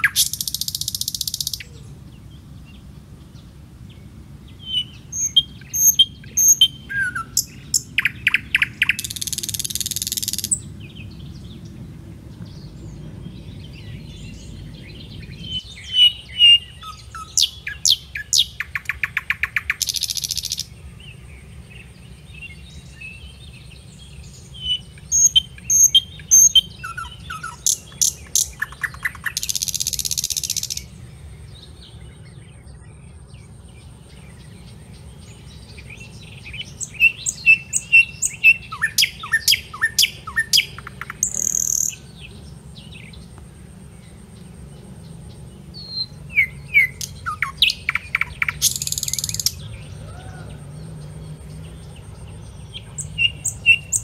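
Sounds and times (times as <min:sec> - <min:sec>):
birds chirping and trilling: 0:00.0 - 0:54.0
steady low rumble: 0:01.6 - 0:17.0.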